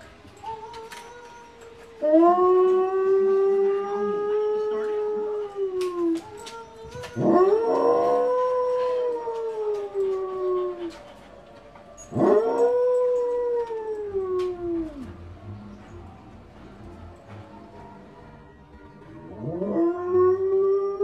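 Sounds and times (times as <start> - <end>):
dog howling: 0.3 - 15.2, 19.3 - 21.0.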